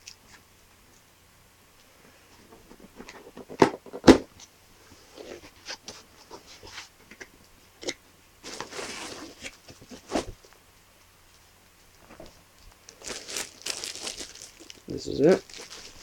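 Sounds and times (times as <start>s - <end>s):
cardboard scraping rustle: 8.4s - 10.4s, 13.0s - 16.0s.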